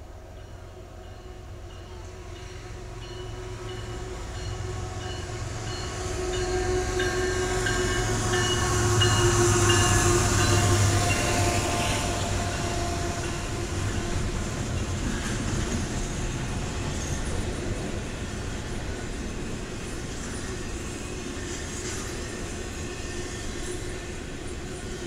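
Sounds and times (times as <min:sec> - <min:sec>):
freight train wheels rumbling: 0:00.0 - 0:25.0.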